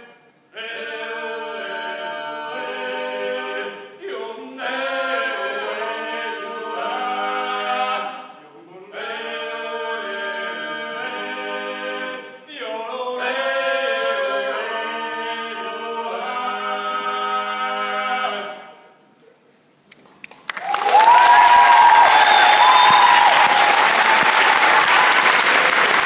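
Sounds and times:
voices singing in harmony: 0.0 - 19.1.

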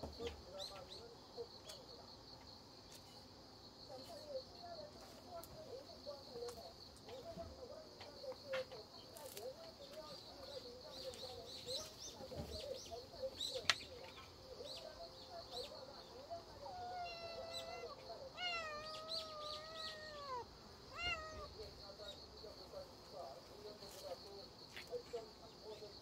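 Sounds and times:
kitten meowing: 16.8 - 21.5.

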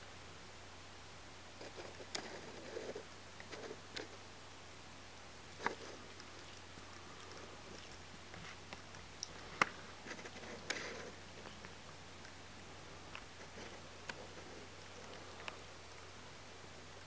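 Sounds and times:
cat licking and grooming: 5.4 - 17.0.

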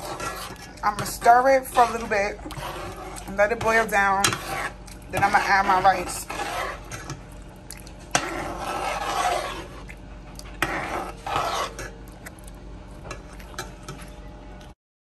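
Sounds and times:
spoon scraping a pot: 0.0 - 7.3, 8.0 - 12.0.

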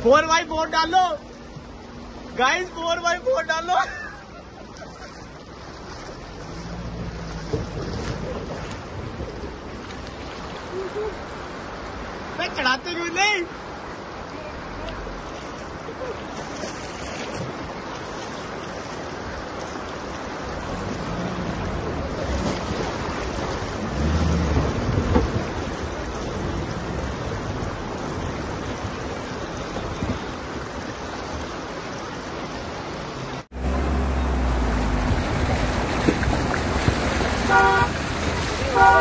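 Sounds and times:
rushing river water: 0.0 - 39.0
vehicle splashing through water: 0.0 - 39.0
low rumble: 33.5 - 38.6
wind buffeting microphone: 33.6 - 39.0.

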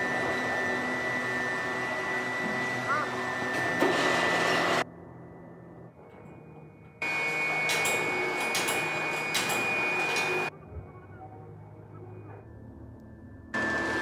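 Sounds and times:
low hum: 4.8 - 7.0, 10.5 - 13.6.

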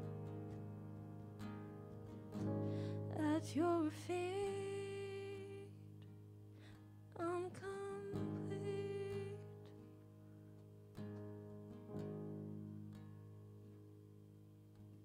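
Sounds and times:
woman singing: 3.1 - 5.9, 7.2 - 9.7.

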